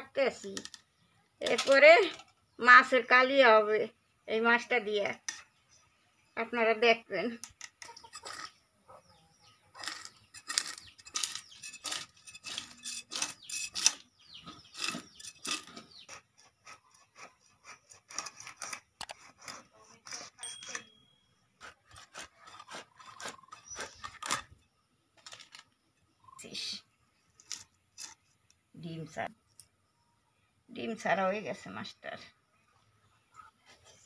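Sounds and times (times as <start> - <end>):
fish scraping against blade: 7.4 - 8.6, 9.8 - 20.9, 21.6 - 24.6, 27.4 - 28.4.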